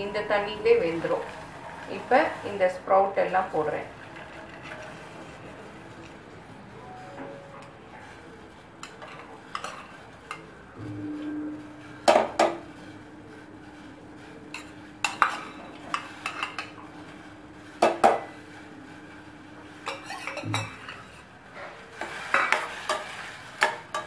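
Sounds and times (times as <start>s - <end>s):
spoon stirring sprouts: 0.3s - 6.2s, 8.8s - 10.6s, 14.5s - 17.2s, 19.6s - 24.0s
spoon clanking on steel bowl: 14.6s - 16.7s, 19.8s - 21.2s, 22.3s - 24.0s.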